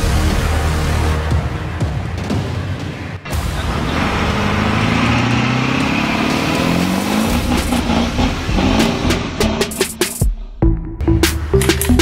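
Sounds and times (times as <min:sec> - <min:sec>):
vehicle engine revving up: 0:03.3 - 0:10.0.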